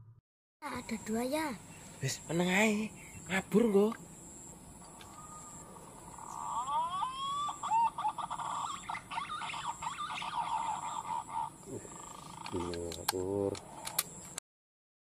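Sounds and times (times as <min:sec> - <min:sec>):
pigeon whistling calls: 0:05.1 - 0:12.7.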